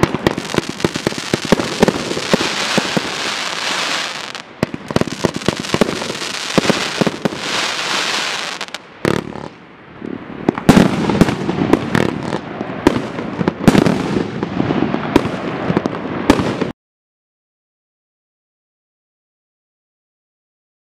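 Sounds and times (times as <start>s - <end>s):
fireworks crackling: 0.0s - 16.7s.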